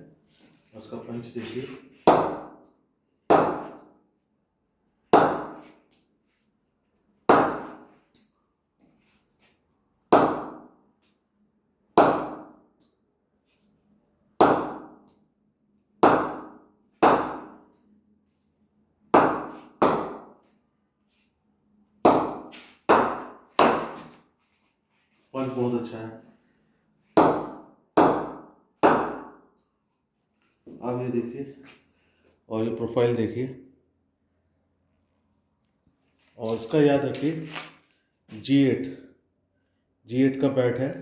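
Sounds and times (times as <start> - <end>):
cricket ball hitting bat: 14.4 - 14.9, 16.0 - 17.6, 19.2 - 20.3, 27.2 - 29.3.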